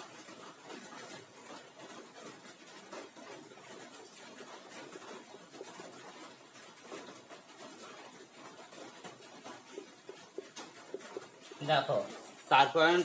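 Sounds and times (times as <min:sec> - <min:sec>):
low room noise: 0:00.0 - 0:13.0.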